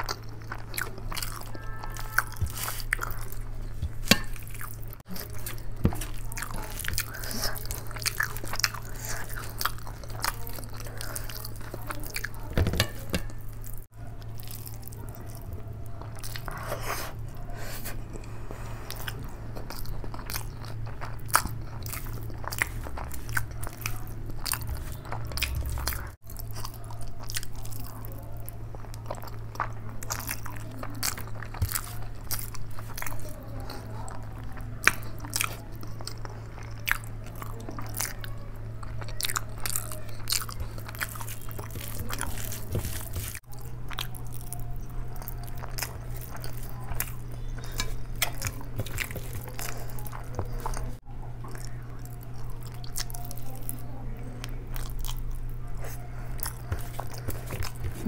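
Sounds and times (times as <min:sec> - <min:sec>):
chewing and mouth smacks: 0:00.0 - 0:58.0
steady low hum: 0:00.0 - 0:58.0
fingers squishing rice: 0:18.9 - 0:51.0.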